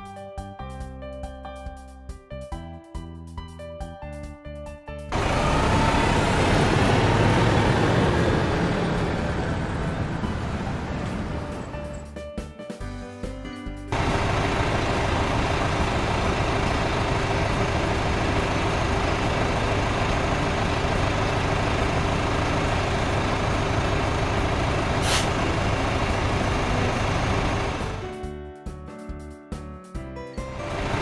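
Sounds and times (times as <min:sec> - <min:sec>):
background music: 0:00.0 - 0:20.5, 0:25.6 - 0:31.0
bus engine running: 0:05.1 - 0:12.1, 0:13.9 - 0:28.2, 0:30.4 - 0:31.0
brief hiss: 0:25.0 - 0:25.4.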